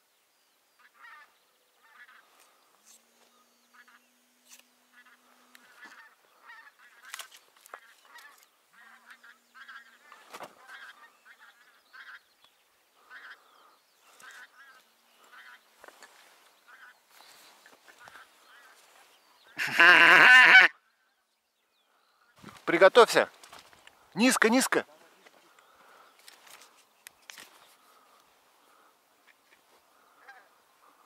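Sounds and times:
geese honking: 0.8 - 2.6, 3.6 - 4.2, 4.8 - 12.3, 13.0 - 20.8.

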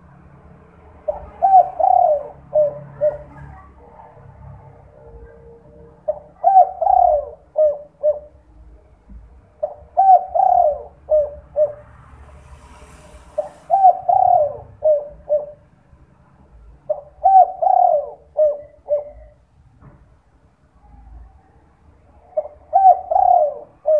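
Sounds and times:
dove cooing: 1.0 - 3.9, 4.5 - 8.6, 9.6 - 11.9, 13.4 - 15.7, 16.9 - 19.4, 22.1 - 23.9.

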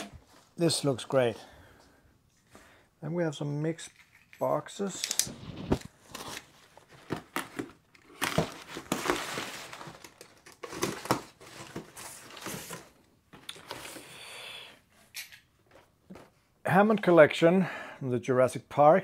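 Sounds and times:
packaging rustling and crinkling: 5.0 - 14.0.

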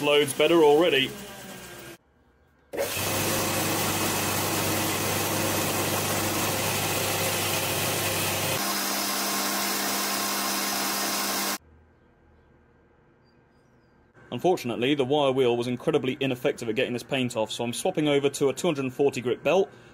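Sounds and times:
belt grinder grinding steel: 0.0 - 2.0.

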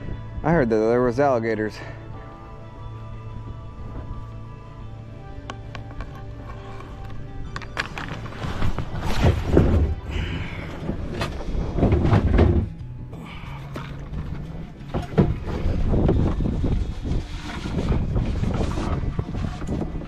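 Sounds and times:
background music with low notes: 0.0 - 20.0
loud thumps and scrapes: 7.7 - 13.0, 13.7 - 20.0.

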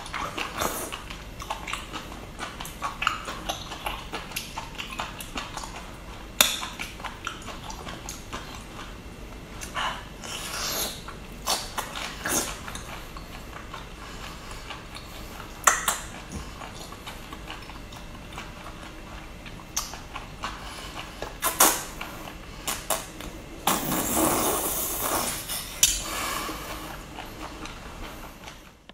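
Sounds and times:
sharp mouth clicks and smacks: 14.7 - 18.0, 19.7 - 20.0, 25.8 - 26.0.

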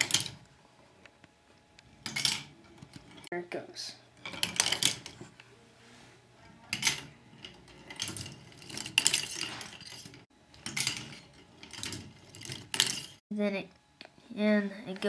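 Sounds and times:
ball clattering on plastic track: 2.0 - 3.3, 4.2 - 5.2, 6.7 - 13.2.

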